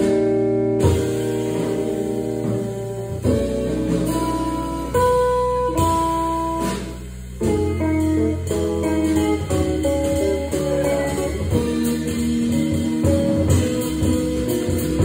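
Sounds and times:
bass: 0:00.0 - 0:15.0
drum kit: 0:00.0 - 0:15.0
electric guitar: 0:00.0 - 0:15.0.

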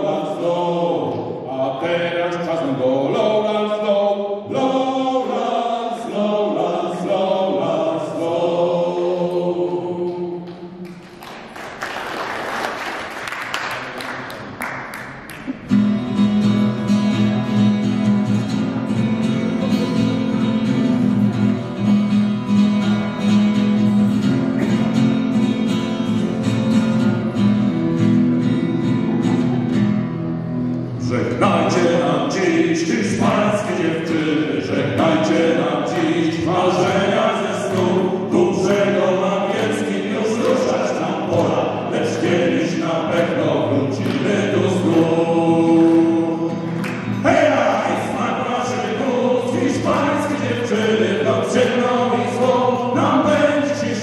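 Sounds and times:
men singing together: 0:00.0 - 0:10.8, 0:31.0 - 0:54.0
audience applause: 0:10.8 - 0:15.7
acoustic guitars strumming: 0:14.4 - 0:54.0.

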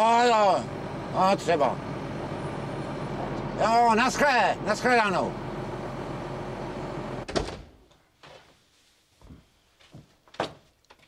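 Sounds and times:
machine engine hum: 0:00.0 - 0:07.3.

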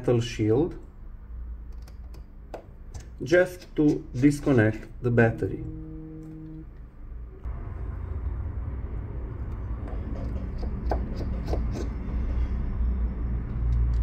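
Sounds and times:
steady low rumble: 0:04.1 - 0:14.0.

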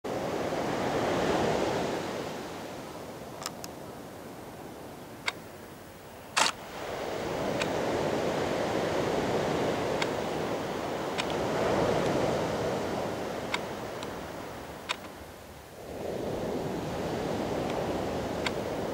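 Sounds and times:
wind: 0:00.0 - 0:18.9
sharp clicks: 0:06.4 - 0:06.6, 0:14.8 - 0:15.1.

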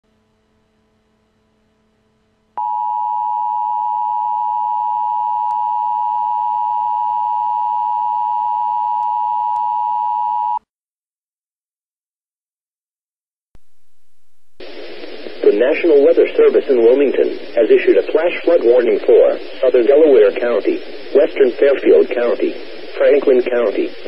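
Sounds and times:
faint hum: 0:00.4 - 0:10.6, 0:13.6 - 0:24.0
high alarm tone: 0:02.6 - 0:10.6.

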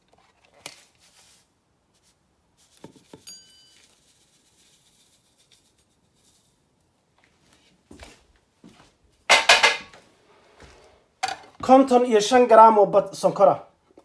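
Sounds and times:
ringing clink of a bowl: 0:02.8 - 0:04.1
sugar pouring into metal bowl: 0:03.3 - 0:06.6.

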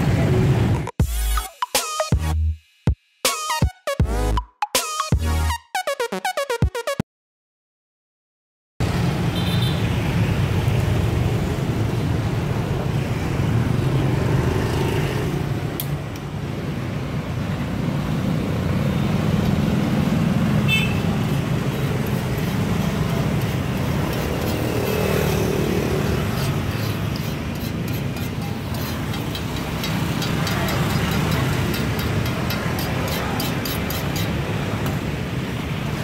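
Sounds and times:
motorbike and car engines passing: 0:08.8 - 0:36.0.

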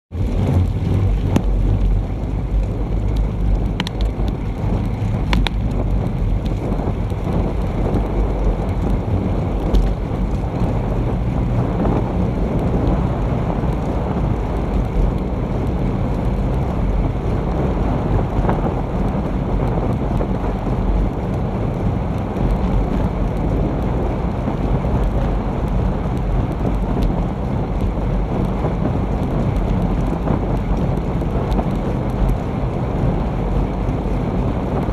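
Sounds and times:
wind buffeting microphone: 0:00.1 - 0:34.9
faint clicks: 0:00.9 - 0:09.0.

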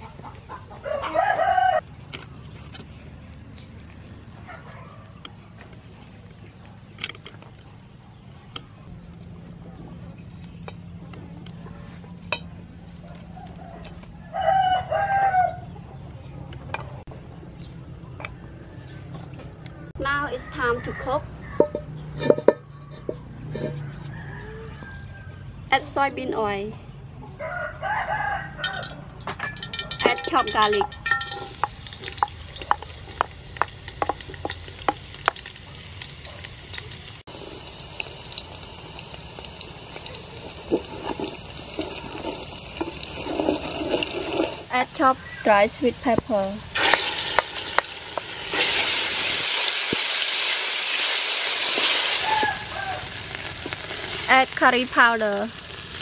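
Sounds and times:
rooster crowing: 0:00.7 - 0:01.8, 0:13.3 - 0:15.8, 0:23.7 - 0:25.6, 0:27.3 - 0:29.1, 0:51.9 - 0:53.5
oil popping: 0:28.7 - 0:45.0, 0:45.7 - 0:56.0
garlic sizzling in oil: 0:30.2 - 0:56.0.

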